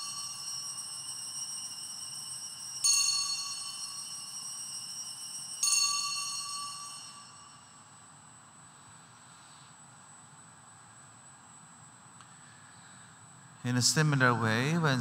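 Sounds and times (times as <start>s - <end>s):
altar bell ringing: 0.0s - 7.9s.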